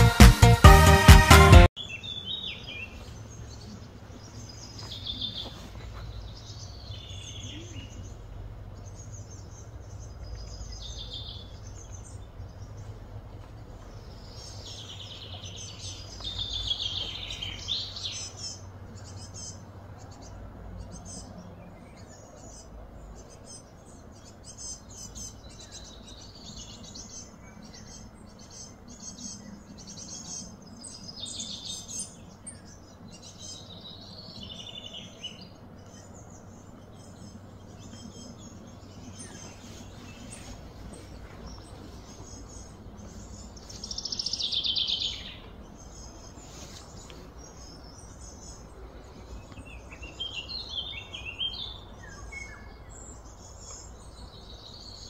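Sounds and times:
birds chirping and calling: 0:01.8 - 0:55.0
low steady hum: 0:02.2 - 0:55.0.

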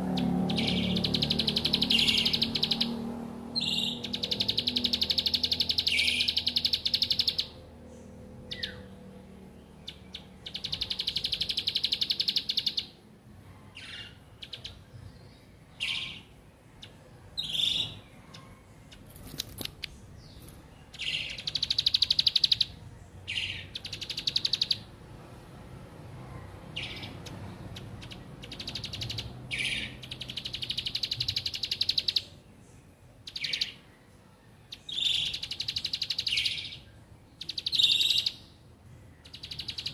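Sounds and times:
bird buzzy trills: 0:00.0 - 0:07.7, 0:09.8 - 0:13.0.

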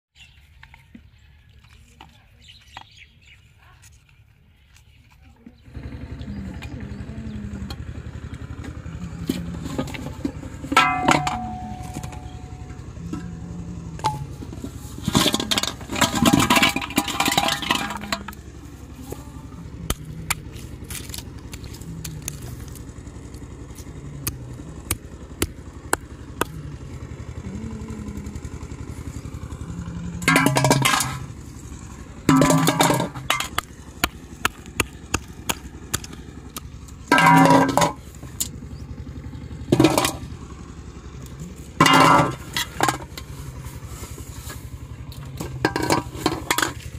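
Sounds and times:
rustling and clatter of bottles: 0:14.0 - 0:18.5, 0:30.2 - 0:31.3, 0:32.3 - 0:33.6, 0:37.1 - 0:38.1, 0:45.3 - 0:46.9.

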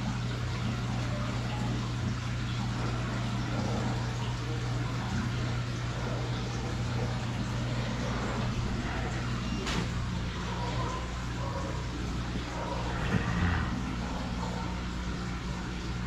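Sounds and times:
aquarium pump hum: 0:00.0 - 0:16.0
water rushing: 0:05.3 - 0:16.0.

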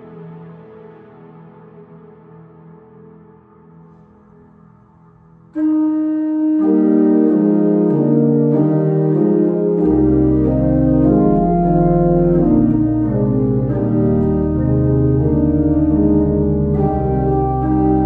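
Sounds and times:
organ chords: 0:05.5 - 0:18.0
deep organ bass notes: 0:05.6 - 0:18.0.

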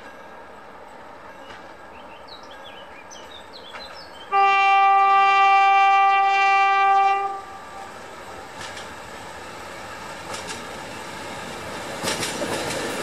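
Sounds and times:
birds chirping: 0:01.2 - 0:04.9
locomotive horn blast: 0:04.3 - 0:07.9.

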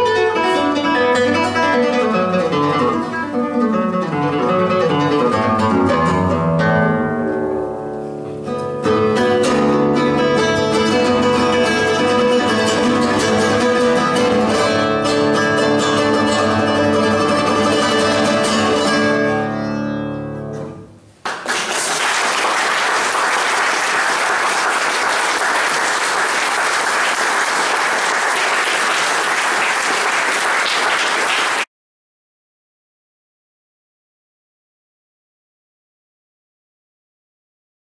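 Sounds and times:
classical guitar playing: 0:00.0 - 0:21.2
audience applauding: 0:21.2 - 0:31.7.

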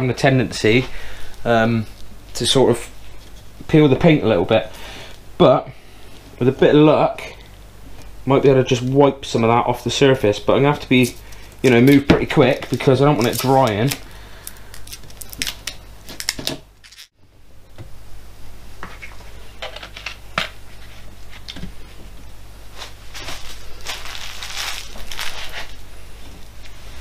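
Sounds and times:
plastic film crinkling: 0:10.9 - 0:17.1, 0:22.7 - 0:26.6.

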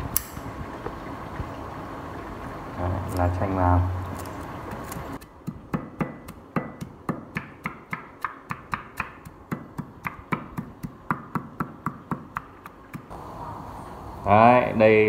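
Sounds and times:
pestle pounding in a mortar: 0:05.2 - 0:13.1.

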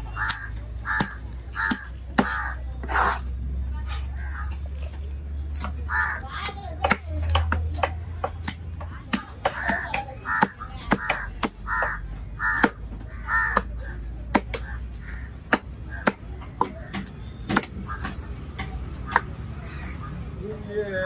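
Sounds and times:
crows cawing: 0:00.1 - 0:03.1, 0:04.1 - 0:04.6, 0:05.8 - 0:06.5, 0:09.4 - 0:20.4
knife chopping on wood block: 0:14.3 - 0:14.7, 0:15.5 - 0:19.4.

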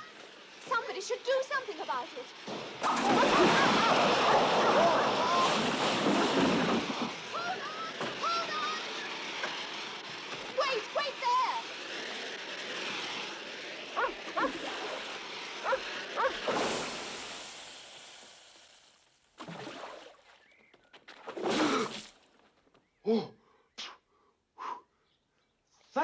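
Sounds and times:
rocket pack hissing: 0:00.0 - 0:20.5
water splash: 0:02.5 - 0:07.4, 0:16.2 - 0:18.6, 0:19.4 - 0:20.5, 0:21.1 - 0:22.3.

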